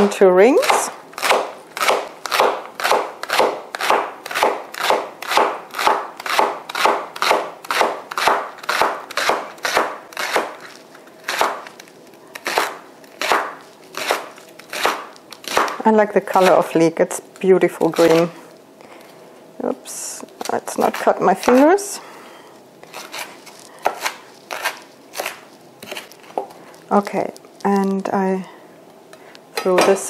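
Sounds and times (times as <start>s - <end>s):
knife slicing on cutting board: 22.9s - 26.1s.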